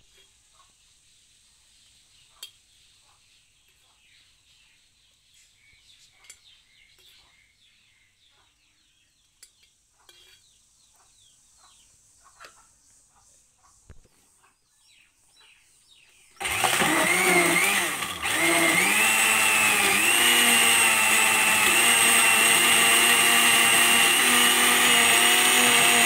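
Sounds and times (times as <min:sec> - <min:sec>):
faint birds chirping: 0:00.1 - 0:16.4.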